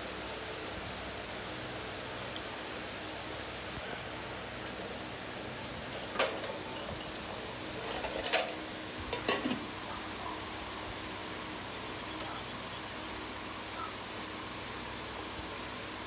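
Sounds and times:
background hiss: 0.0 - 16.0
steel pots clinking: 5.6 - 9.8.

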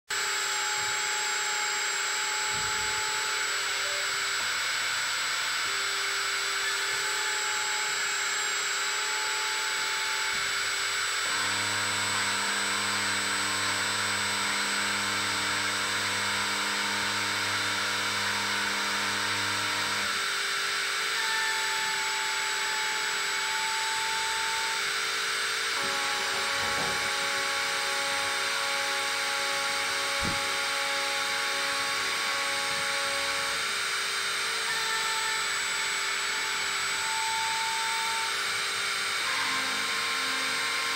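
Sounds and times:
drill spindle whirring: 0.1 - 40.9
machine motors humming: 0.2 - 40.9.

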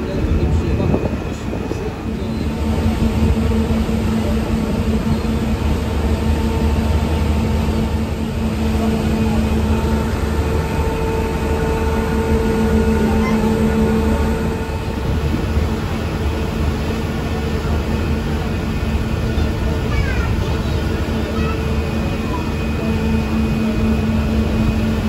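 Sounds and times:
ferry engine droning: 0.0 - 25.0.

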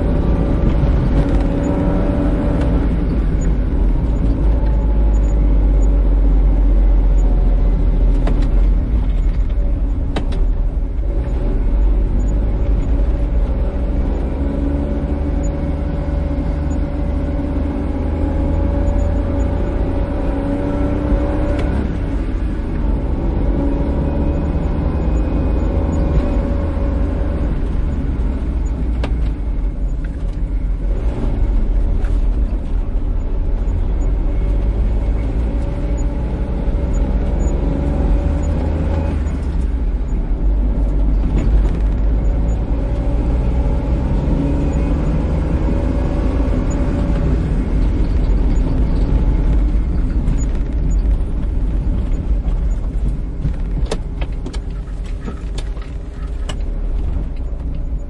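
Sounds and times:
car tyres and engine rumble: 0.0 - 58.0.

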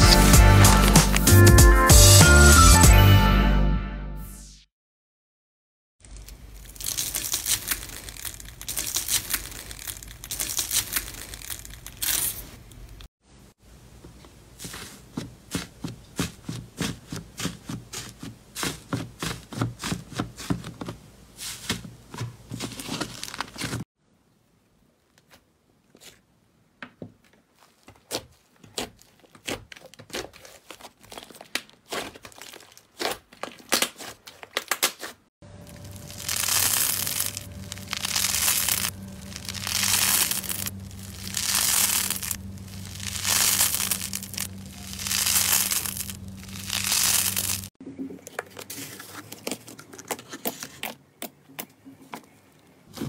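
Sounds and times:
slime crackling when squeezed: 6.1 - 12.4, 35.7 - 47.7.

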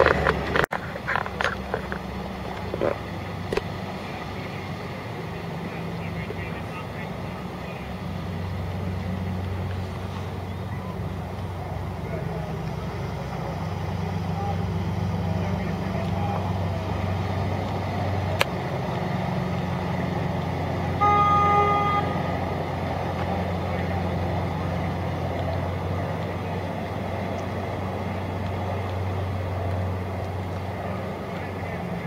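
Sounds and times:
boat engine drone: 0.0 - 32.0
boat horn blast: 20.9 - 22.7.

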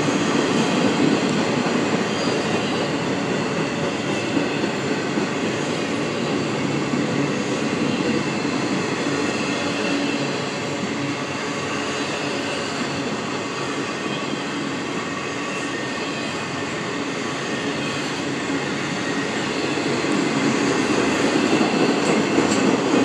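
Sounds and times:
freight train rumbling on rails: 0.0 - 23.0.

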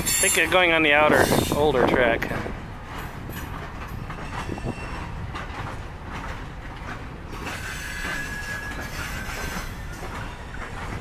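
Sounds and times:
high wheel squeal: 0.0 - 1.7, 4.1 - 5.2, 7.4 - 11.0
train wheels rumbling: 0.0 - 11.0.

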